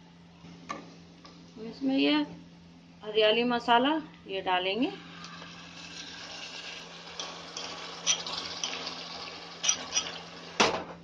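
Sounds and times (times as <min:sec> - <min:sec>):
paste sizzling in oil: 0:05.2 - 0:10.6.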